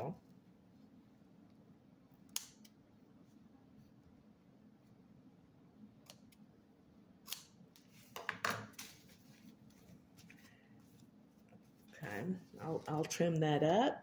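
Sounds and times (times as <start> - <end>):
scissors snipping: 7.2 - 7.5.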